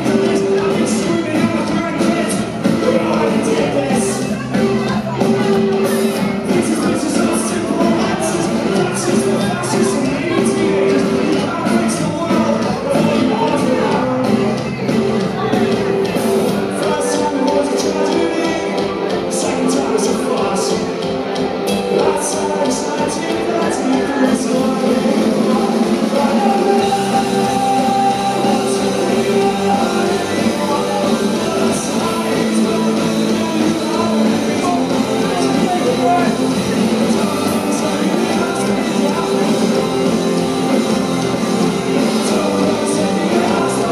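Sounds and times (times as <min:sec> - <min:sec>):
live rock band playing: 0:00.0 - 0:43.9
man singing lead: 0:00.0 - 0:43.9.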